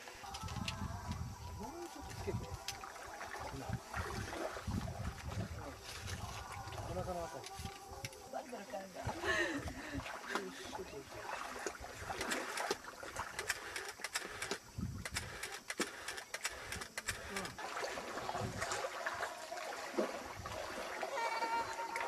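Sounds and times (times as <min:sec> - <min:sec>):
wind buffeting microphone: 0:00.3 - 0:02.8, 0:03.5 - 0:08.1, 0:14.2 - 0:17.4, 0:18.2 - 0:18.8
water lapping over wet sand: 0:01.0 - 0:22.0
crackling clicks: 0:12.2 - 0:17.6.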